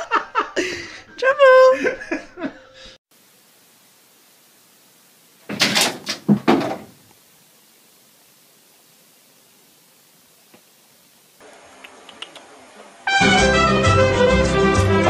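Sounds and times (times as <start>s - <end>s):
faint steady hiss: 3.1s - 13.2s
knocks and thumps: 5.4s - 7.0s.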